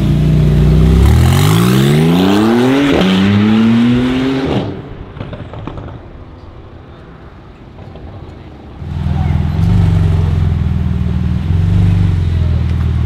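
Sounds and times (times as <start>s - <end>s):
sports car engine accelerating: 0.0s - 5.0s
exhaust pops: 4.5s - 6.4s.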